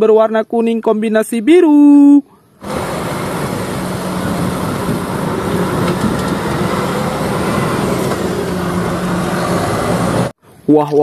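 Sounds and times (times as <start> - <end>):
traffic noise: 2.5 - 10.6
diesel engine humming: 2.6 - 10.4.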